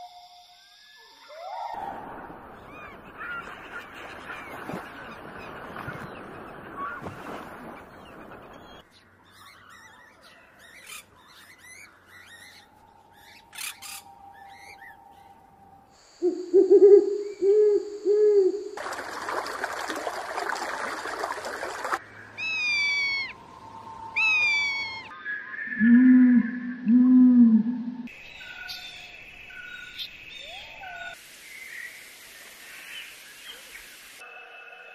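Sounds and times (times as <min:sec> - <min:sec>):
owl hooting: 0:16.0 - 0:18.8, 0:22.4 - 0:28.0.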